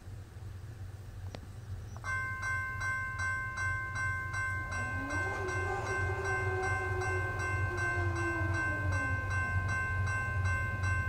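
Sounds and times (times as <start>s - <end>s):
railroad crossing bell clanging: 2.0s - 11.0s.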